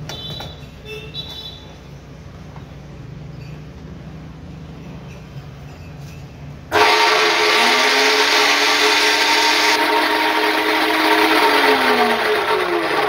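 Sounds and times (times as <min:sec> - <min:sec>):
cut-off saw motor whining: 0:06.7 - 0:13.0.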